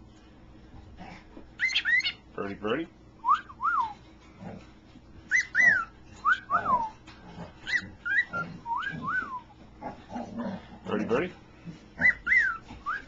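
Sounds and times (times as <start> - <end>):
cockatiel whistling: 1.6 - 2.2, 5.3 - 6.9, 7.7 - 9.5, 12.0 - 13.0.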